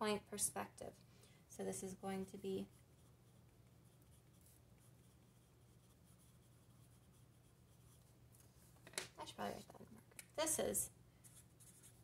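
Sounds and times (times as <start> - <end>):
pen scratching on paper: 2.7 - 8.0, 11.3 - 12.0.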